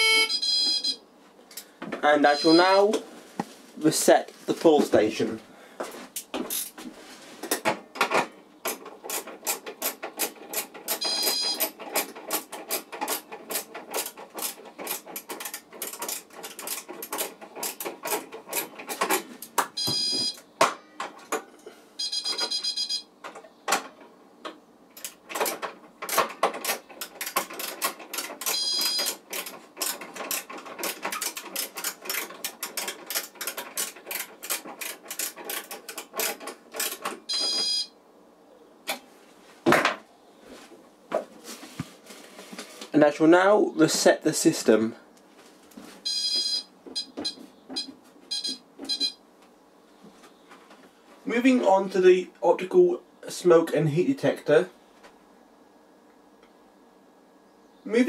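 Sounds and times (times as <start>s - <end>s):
short high-pitched ringing tones: 0.0s - 1.0s.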